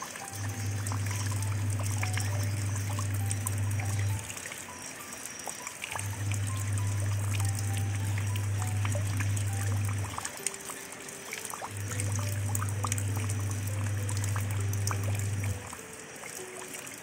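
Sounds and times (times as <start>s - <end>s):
raindrops plinking in puddle: 0.0s - 17.0s
soft background music: 0.0s - 17.0s
low steady drone: 0.2s - 4.3s, 6.0s - 10.3s, 11.7s - 15.8s.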